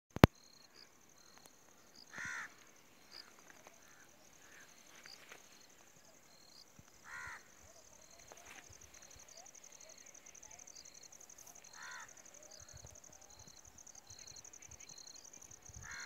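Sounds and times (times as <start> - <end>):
high insect trill: 0.3 - 16.0
crow cawing: 2.1 - 5.1, 7.0 - 7.6, 11.7 - 12.2.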